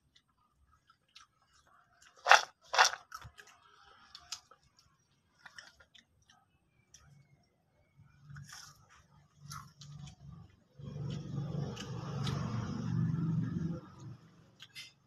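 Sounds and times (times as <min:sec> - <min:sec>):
snack sticks crunching: 0:00.9 - 0:07.1, 0:08.3 - 0:10.4.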